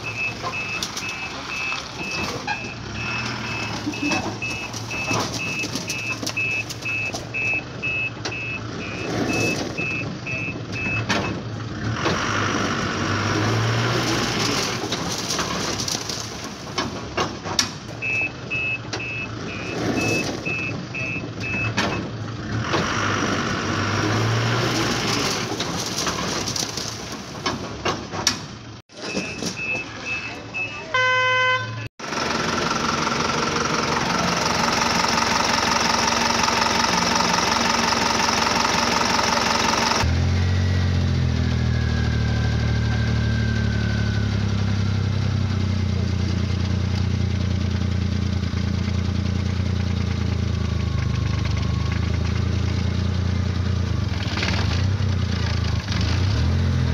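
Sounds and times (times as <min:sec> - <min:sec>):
truck reversing alarm beeping: 0:00.0 - 0:11.4, 0:17.9 - 0:22.0, 0:28.9 - 0:31.9.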